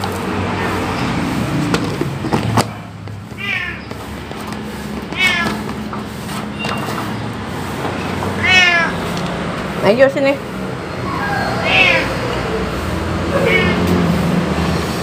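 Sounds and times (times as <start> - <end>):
cat meowing: 3.4 - 3.8, 5.2 - 5.6, 8.4 - 9.0, 11.0 - 12.2, 13.3 - 13.9.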